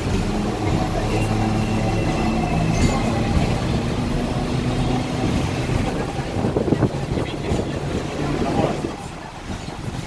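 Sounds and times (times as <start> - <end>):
bus engines: 0.0 - 10.0
tram rumbling on rails: 0.0 - 10.0.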